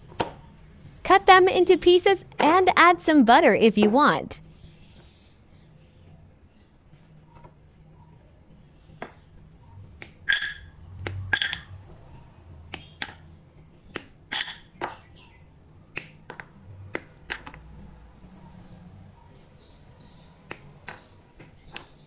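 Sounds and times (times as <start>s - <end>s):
chocolate bar snapping: 13.9s - 14.6s, 15.9s - 17.6s.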